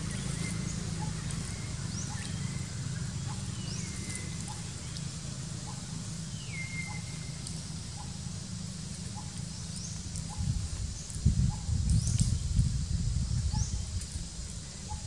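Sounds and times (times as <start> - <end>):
steady low rumble: 0.0 - 15.0
whistled bird call: 6.4 - 7.4.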